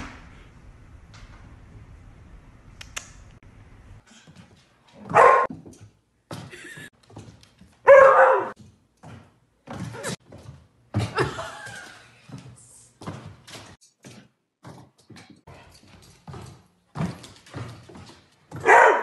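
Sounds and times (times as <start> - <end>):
dog barking loudly: 5.1 - 5.5, 7.8 - 8.6, 18.6 - 19.0.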